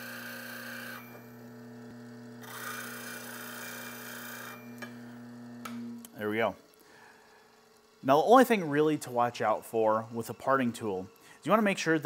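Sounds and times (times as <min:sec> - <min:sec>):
bench grinder motor humming: 0:00.0 - 0:06.1.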